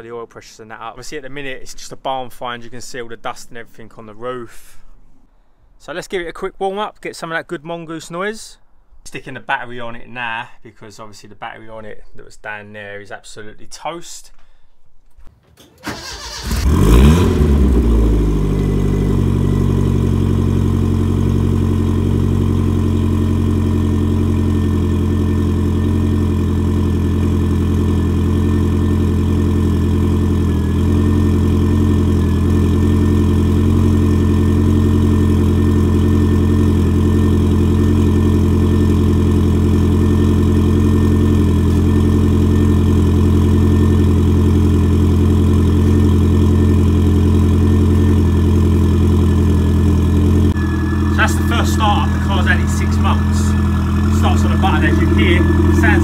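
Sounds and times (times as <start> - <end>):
car engine cranking and idling: 15.6 - 56.0.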